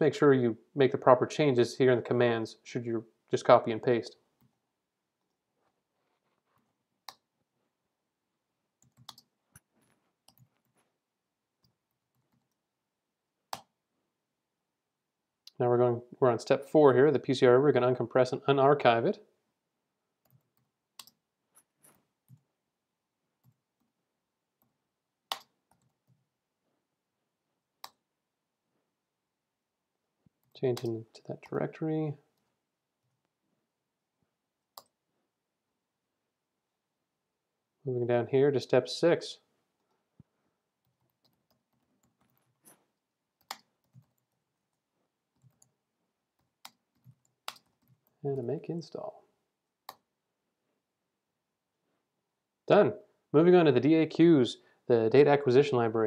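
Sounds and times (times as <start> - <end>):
keyboard and mouse clicks: 8.8 - 10.8, 20.2 - 21.2, 25.3 - 26.2, 30.4 - 31.6, 40.8 - 42.8, 43.4 - 44.4, 46.4 - 48.2
mouse clicks: 25.3 - 26.0.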